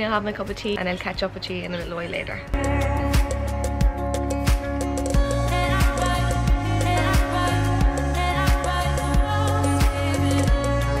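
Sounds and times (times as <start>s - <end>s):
music with held chords: 2.5s - 11.0s.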